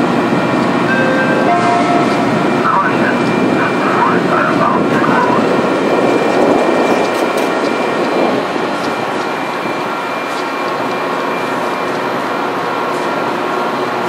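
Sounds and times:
steady train rumble: 0.0s - 14.0s
train pulling away: 0.0s - 14.0s
person speaking: 0.9s - 4.0s.

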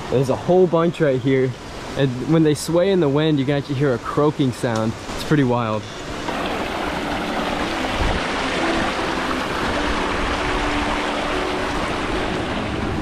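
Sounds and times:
wind rushing: 6.1s - 13.0s.

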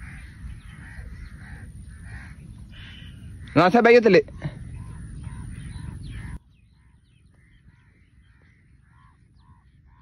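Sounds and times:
birds cawing: 0.0s - 10.0s.

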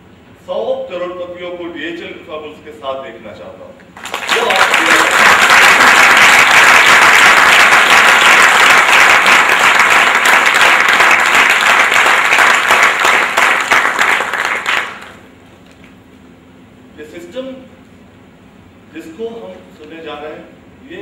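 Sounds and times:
audience applauding: 4.0s - 15.2s.

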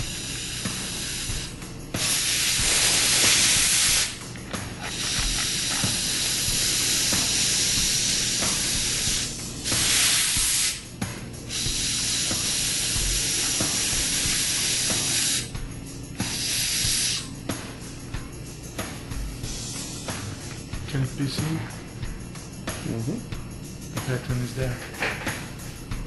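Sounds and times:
compressed air blow gun hissing: 0.0s - 20.8s.

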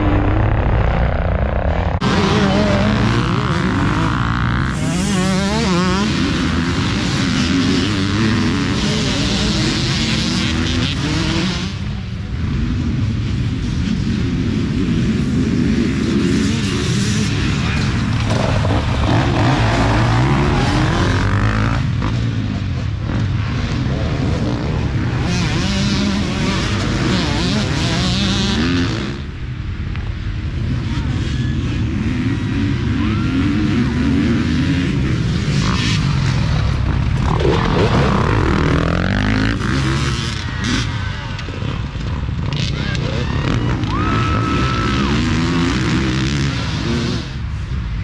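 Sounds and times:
dirt bike engines revving: 0.0s - 48.0s.

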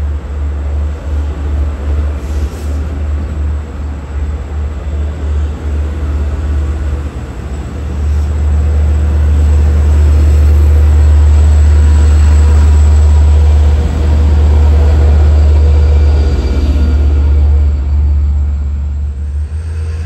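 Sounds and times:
diesel train rumbling past: 0.0s - 20.0s.

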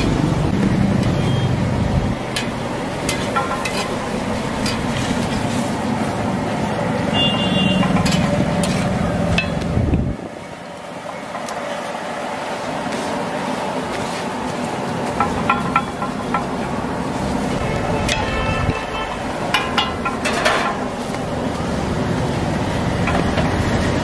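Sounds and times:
short high beeps: 1.1s - 1.6s.

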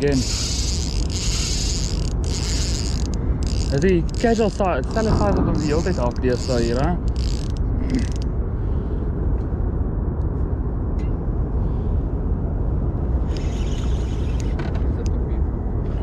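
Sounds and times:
fishing reel winding: 0.0s - 8.2s, 13.3s - 14.6s
reel ticking: 0.0s - 8.2s
low rumble: 0.0s - 16.0s.

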